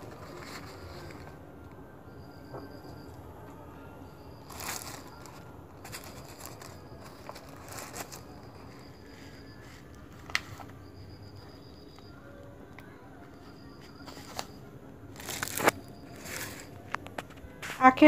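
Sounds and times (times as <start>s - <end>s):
plastic bag rustling: 0.0s - 1.4s, 4.4s - 10.7s, 15.1s - 17.9s.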